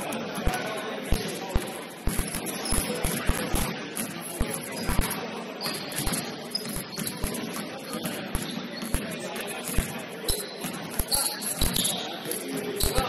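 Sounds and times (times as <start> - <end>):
basketball bouncing on gym floor: 0.0 - 12.1
hubbub of players: 0.0 - 13.0
short high squeaks: 10.3 - 13.0.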